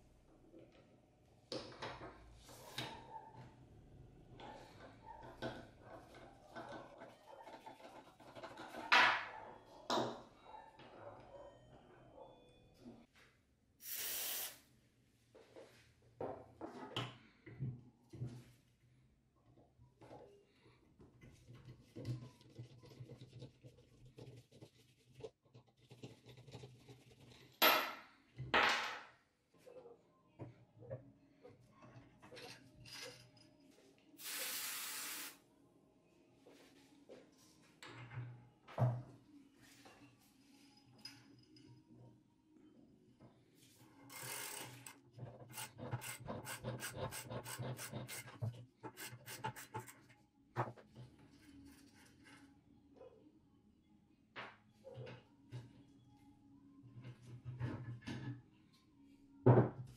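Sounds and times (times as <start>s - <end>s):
hissing spray: 13.8s - 14.6s, 34.2s - 35.4s.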